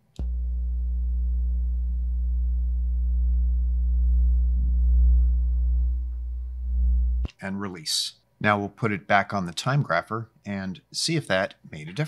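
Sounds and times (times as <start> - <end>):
low electrical hum: 0.0 - 9.5.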